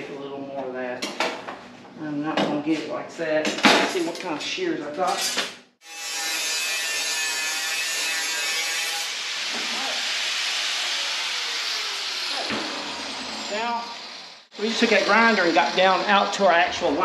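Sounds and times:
angle grinder grinding metal: 0:05.2 - 0:16.5.

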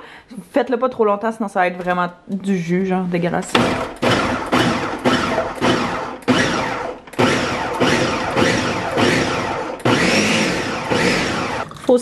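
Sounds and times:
blender pulsing: 0:03.6 - 0:12.0.

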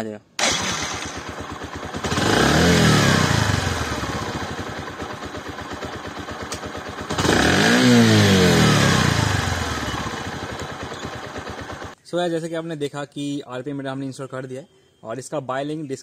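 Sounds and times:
motorcycle engine idling and revving: 0:00.4 - 0:12.0.

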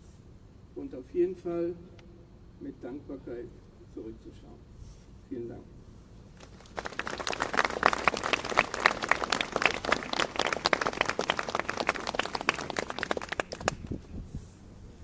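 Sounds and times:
crowd applauding: 0:06.5 - 0:14.0.

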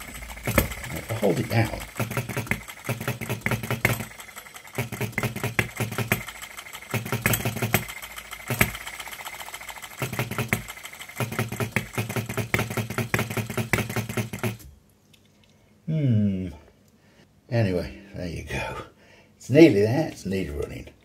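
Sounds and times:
small petrol engine firing unevenly: 0:00.0 - 0:14.7.

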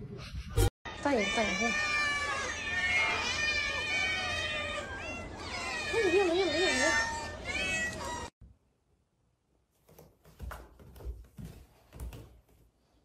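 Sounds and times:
footsteps on wooden stairs: 0:09.8 - 0:12.7.

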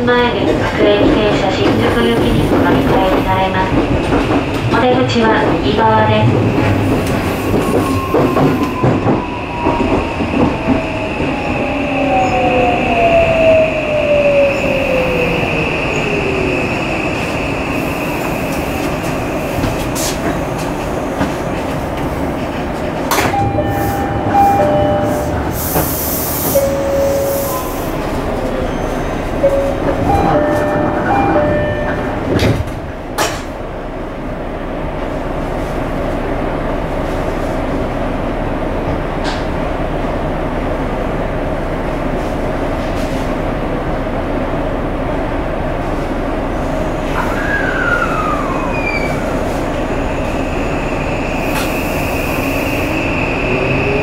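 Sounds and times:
train wheel and rail noise: 0:00.0 - 0:54.0
inverter tones: 0:23.2 - 0:25.6.

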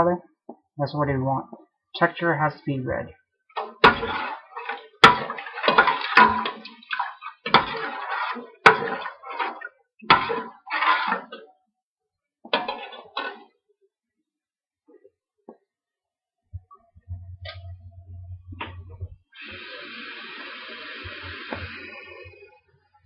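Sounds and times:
metal ladle scraping pot: 0:03.6 - 0:11.4, 0:12.6 - 0:13.4.

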